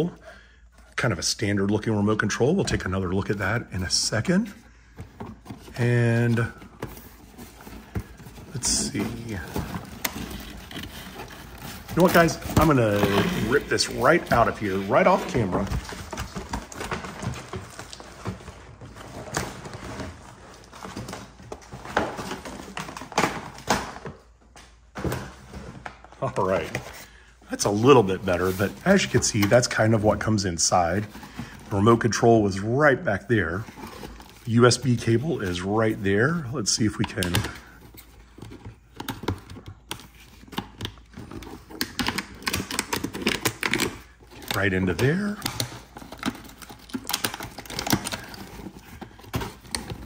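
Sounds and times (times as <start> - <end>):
plastic bag rustling: 4.7 - 23.6, 25.5 - 32.5
packaging ripping and crackling: 7.9 - 23.6, 39.0 - 50.0.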